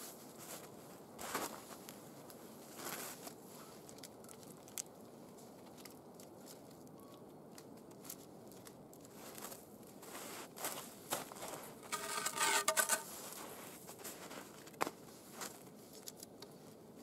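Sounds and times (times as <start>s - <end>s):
wooden log crunching: 11.8s - 13.1s.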